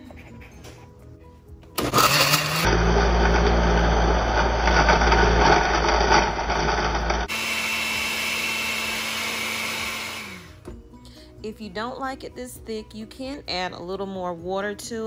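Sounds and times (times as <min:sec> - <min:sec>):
blender churning ice: 0:01.8 - 0:10.6.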